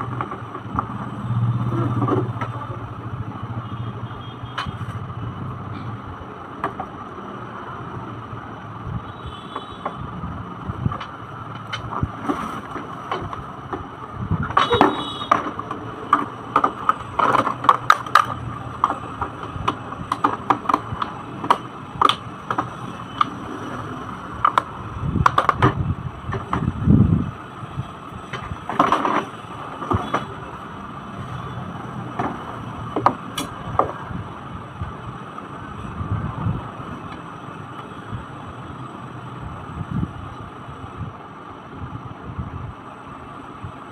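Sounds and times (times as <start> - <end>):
steady background hum: 0.0 - 43.9
plastic parts clicking and rattling: 10.8 - 23.4, 28.3 - 30.4.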